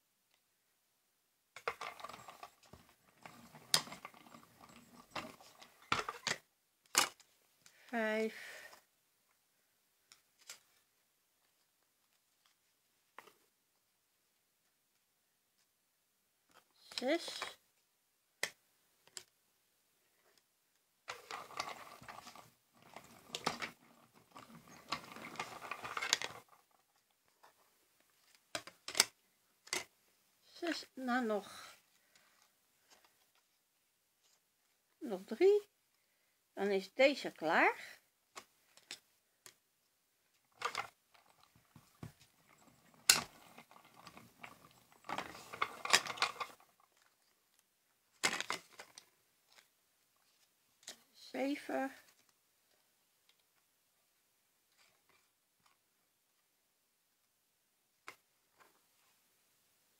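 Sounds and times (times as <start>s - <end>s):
plastic clattering and clicking: 1.6s - 7.3s, 21.1s - 27.6s, 28.2s - 29.9s, 40.3s - 49.7s.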